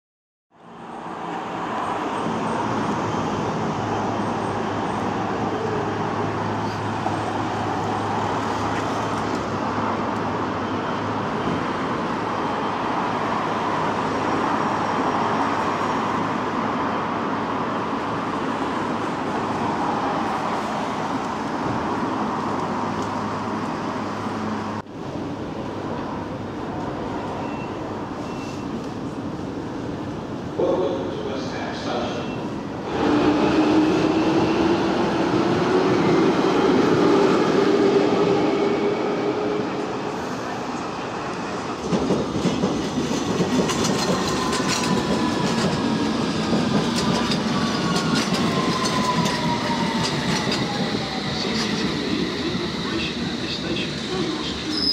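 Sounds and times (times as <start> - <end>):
road traffic noise: 0.5 - 54.9
station ticket hall background: 48.6 - 54.9.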